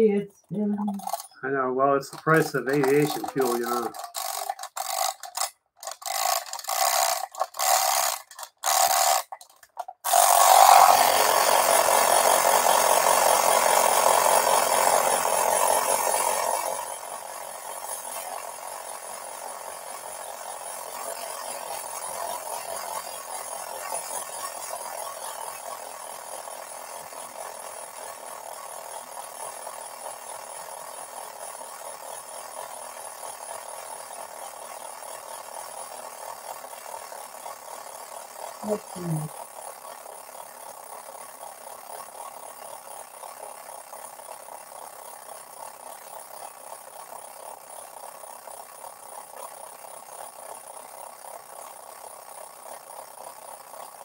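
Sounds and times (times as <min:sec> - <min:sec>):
clockwork spring whirring: 0:00.0 - 0:54.0
mechanical whir with ticking: 0:00.0 - 0:54.0
key winding ratchet: 0:00.8 - 0:01.4, 0:02.1 - 0:16.9.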